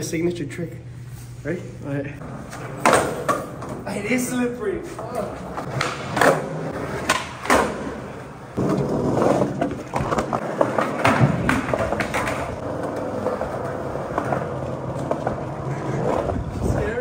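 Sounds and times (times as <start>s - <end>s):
skateboard wheels rumbling: 2.2s - 17.0s
skateboard clacks and knocks: 8.6s - 16.4s.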